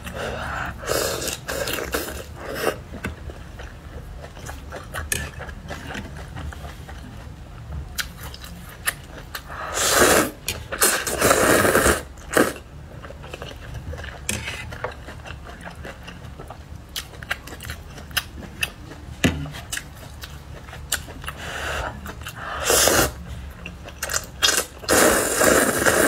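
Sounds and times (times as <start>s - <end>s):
chewing: 0.0s - 9.6s, 13.0s - 22.5s, 23.3s - 25.0s
slurping noodles: 0.2s - 2.8s, 9.6s - 12.6s, 21.7s - 23.2s, 24.2s - 26.0s.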